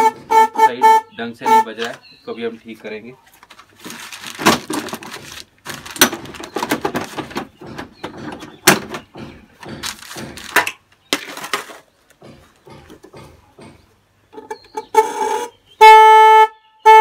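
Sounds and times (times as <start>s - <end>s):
plastic scraping: 3.3s - 13.2s
plastic cover clicking and knocking: 3.4s - 13.4s.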